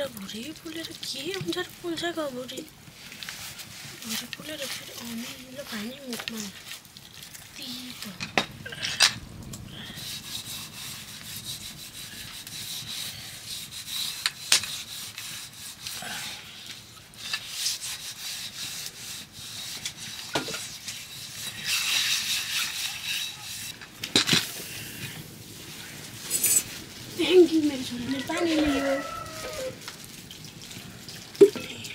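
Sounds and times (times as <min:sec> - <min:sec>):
hand rubbing paste on metal pot: 0:10.0 - 0:23.8, 0:26.3 - 0:29.8.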